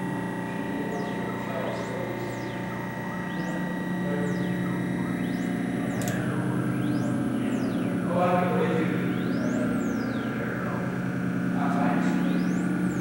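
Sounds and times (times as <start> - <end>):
low electronic hum: 0.0 - 13.0
sharp click: 5.9 - 6.3.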